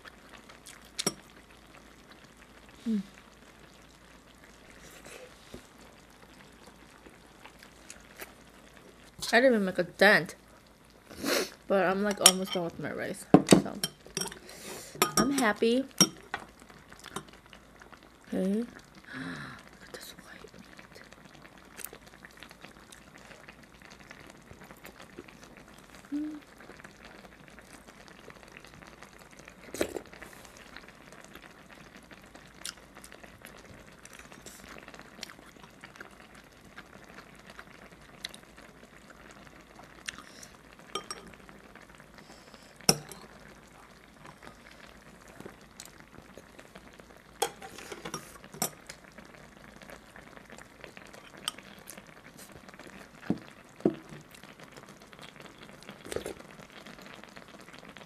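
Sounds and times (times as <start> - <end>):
faint steady hiss: 0.0 - 58.0
spoon and chopsticks clicking on pot: 13.5 - 14.4, 15.0 - 16.2.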